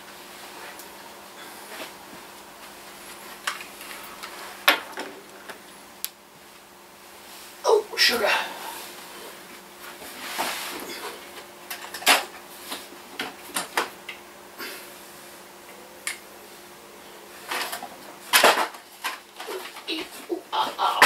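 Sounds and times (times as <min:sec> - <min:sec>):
faint hum: 0:00.0 - 0:21.0
rummaging knocks and rustles: 0:17.4 - 0:20.3.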